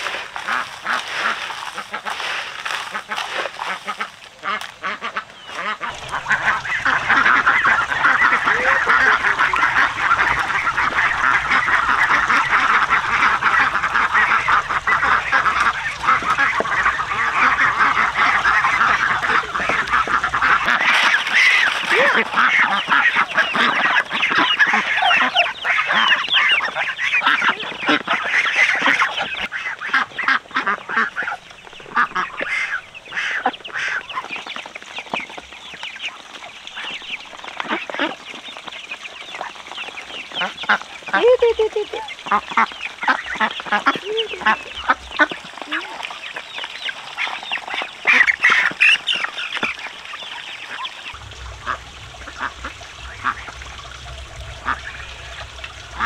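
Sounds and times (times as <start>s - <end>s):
poultry calling: 0.0s - 35.2s, 40.3s - 46.2s
steady low hum: 5.8s - 20.9s, 51.1s - 56.0s.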